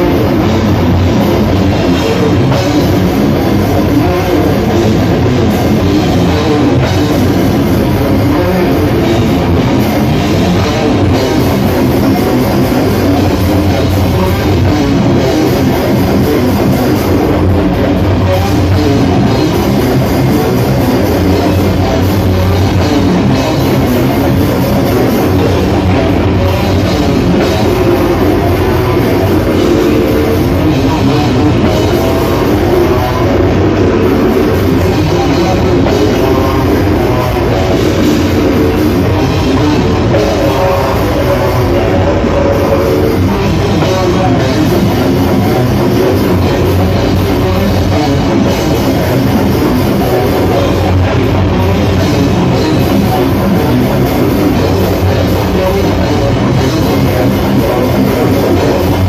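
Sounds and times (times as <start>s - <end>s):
distorted electric guitar: 0.0s - 59.0s
drum kit: 0.0s - 59.0s
vocalist growling into microphone: 0.0s - 59.0s.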